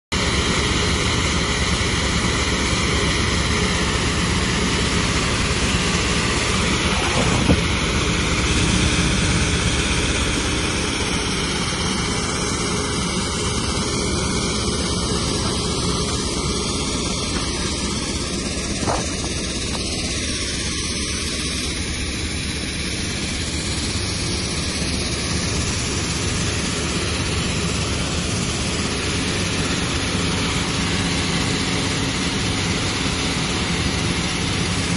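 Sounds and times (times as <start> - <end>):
crushing plant machinery noise: 0.2 - 34.9.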